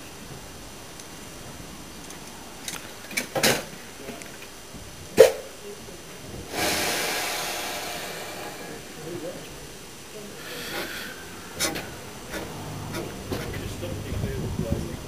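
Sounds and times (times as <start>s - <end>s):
steam hissing: 6.1s - 15.0s.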